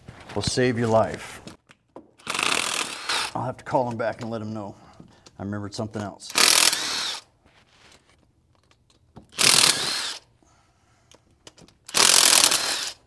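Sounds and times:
impact wrench spinning: 2.2s - 3.4s, 6.3s - 7.3s, 9.3s - 10.2s, 11.9s - 13.0s.

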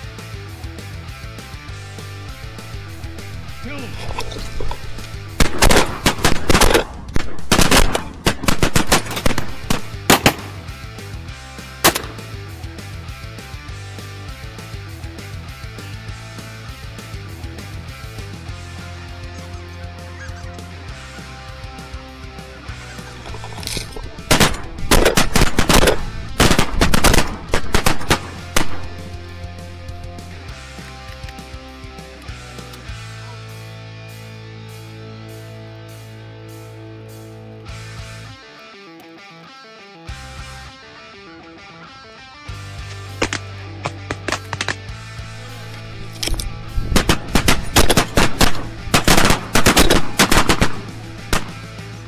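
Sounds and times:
shotgun shots: 2.2s - 10.7s, 11.8s - 12.4s, 23.2s - 29.3s, 43.1s - 44.9s, 45.6s - 51.8s.

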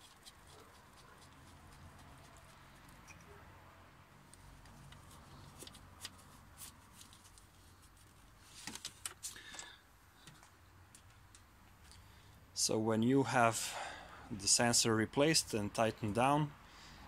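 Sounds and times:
hand rustling wiring: 4.3s - 11.5s.

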